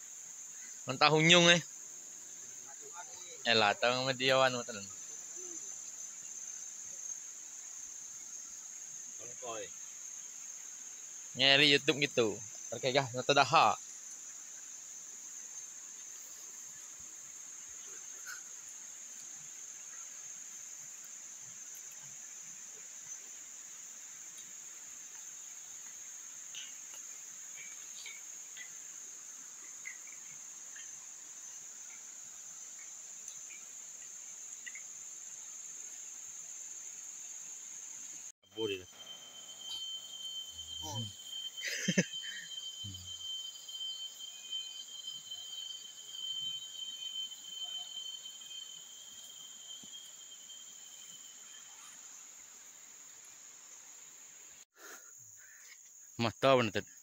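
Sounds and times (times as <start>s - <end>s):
insects droning: 0.0s - 57.0s.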